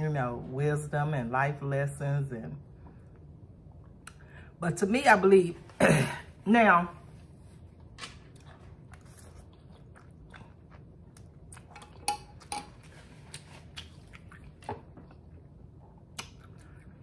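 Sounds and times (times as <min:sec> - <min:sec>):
person chewing: 0:07.6 - 0:17.0
wet mouth clicks and smacks: 0:16.1 - 0:16.8.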